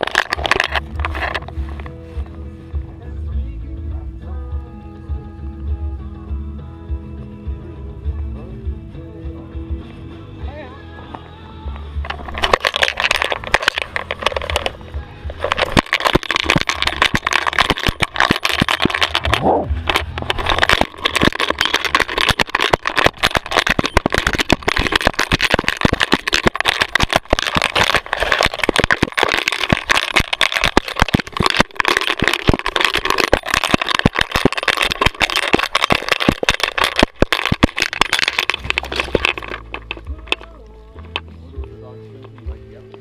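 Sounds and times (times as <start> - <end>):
camera mount rattling and knocking: 0.0 - 1.9, 12.0 - 41.3.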